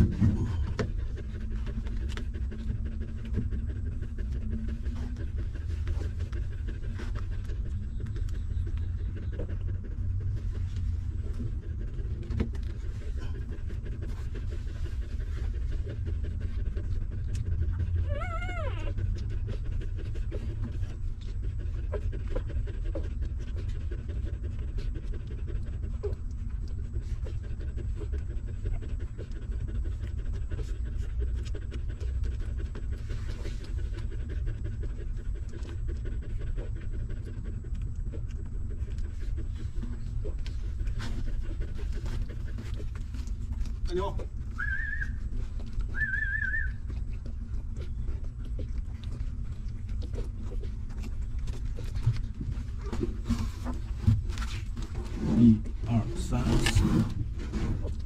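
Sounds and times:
dog panting: 0.0s - 58.0s
low even rumble: 0.0s - 58.0s
puppy whimpering: 15.2s - 24.2s, 25.9s - 54.8s.

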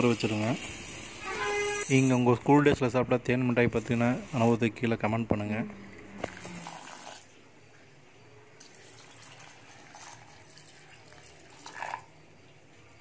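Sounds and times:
water pouring into steel bowl: 6.3s - 7.3s, 8.6s - 12.2s.

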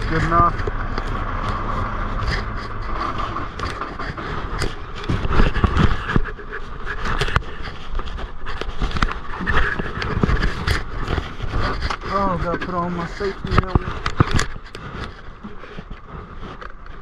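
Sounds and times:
diesel engine running: 0.0s - 7.5s
clicks knocks and rattles: 0.0s - 17.0s.

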